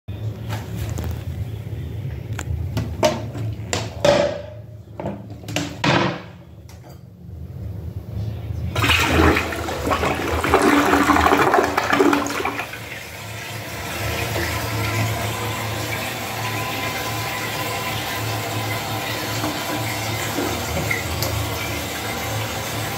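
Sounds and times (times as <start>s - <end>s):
toilet flushing: 8.7s - 22.9s
toilet refilling hiss: 8.8s - 22.9s.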